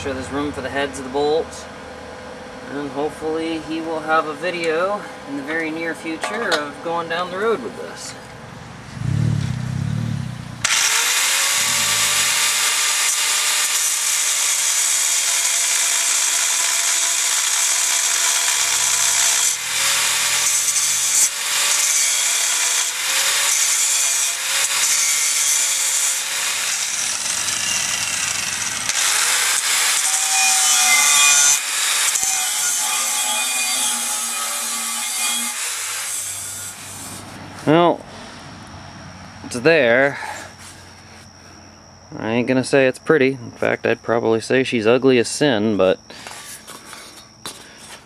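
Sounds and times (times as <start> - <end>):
angle grinder grinding metal: 10.6 - 37.2.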